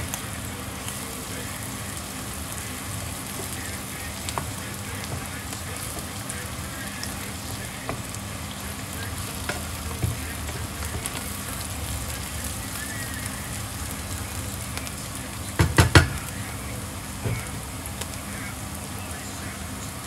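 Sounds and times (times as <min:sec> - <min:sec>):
food sizzling in a frying pan: 0:00.0 - 0:20.0
knocks against a pan: 0:15.6 - 0:16.2.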